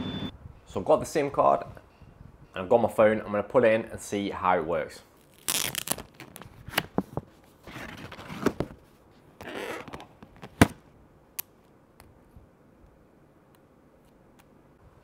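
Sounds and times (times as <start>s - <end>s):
plastic wrapper crinkling: 5.2s - 6.8s.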